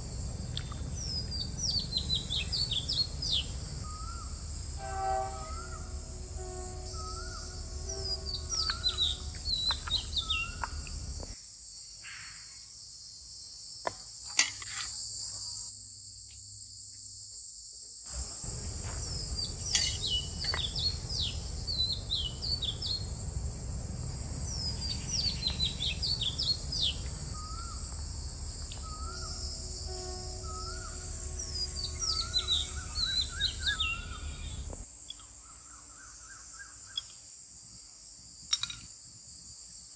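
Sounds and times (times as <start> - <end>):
high-pitched insect drone: 0.0 - 11.4, 18.1 - 37.4
songbirds chirping: 0.0 - 11.4, 18.5 - 37.3.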